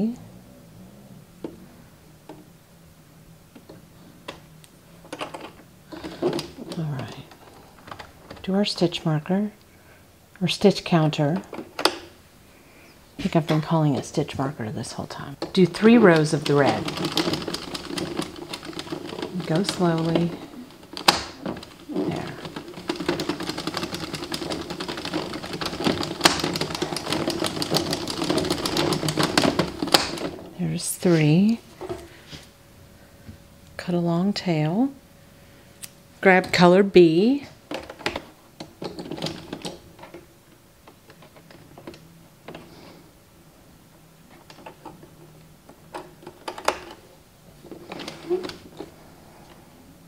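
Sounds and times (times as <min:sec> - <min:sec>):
knitting machine plastic clicks: 0:15.4 - 0:30.5.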